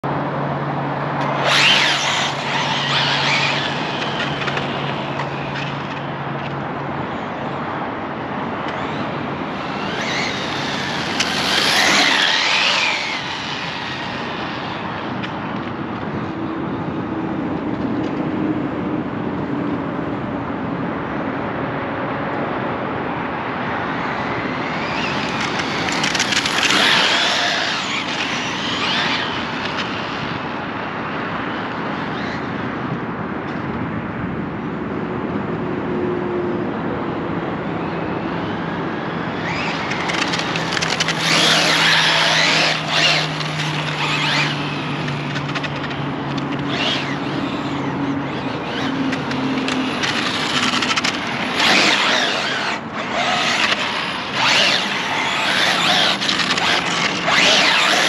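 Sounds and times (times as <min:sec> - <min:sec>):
toy car motor whine passing: 0:01.2 - 0:06.2, 0:08.7 - 0:15.3, 0:23.9 - 0:30.6, 0:38.1 - 0:58.0.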